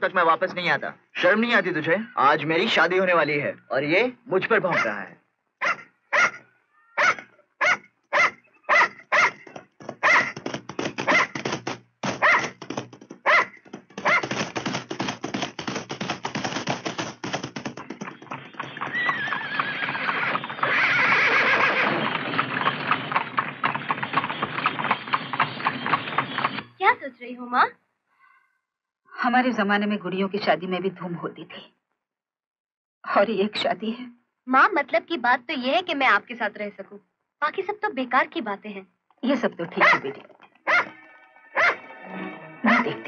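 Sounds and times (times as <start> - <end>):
dog barking: 4.7 - 5.0, 5.6 - 6.4, 7.0 - 10.4, 11.0 - 11.4, 12.2 - 12.6, 13.2 - 14.3, 39.8 - 41.0, 41.6 - 41.8, 42.7 - 43.0.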